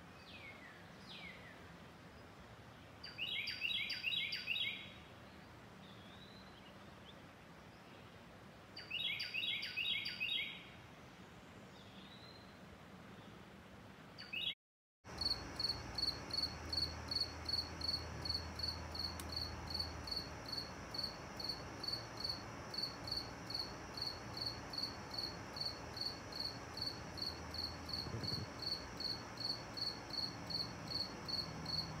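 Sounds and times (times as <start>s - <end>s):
cricket chirping: 15.1s - 32.0s.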